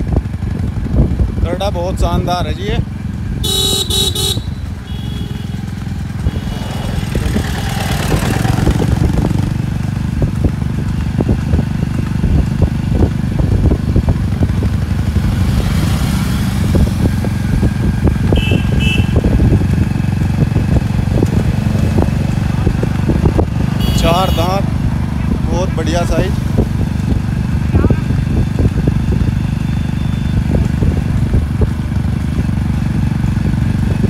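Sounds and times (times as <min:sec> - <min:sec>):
motorcycle and scooter engines: 0:00.0 - 0:34.0
vehicle horn honking: 0:03.4 - 0:07.6, 0:18.3 - 0:19.3, 0:23.8 - 0:24.6, 0:29.7 - 0:30.3
hooves trotting on asphalt: 0:03.4 - 0:15.6.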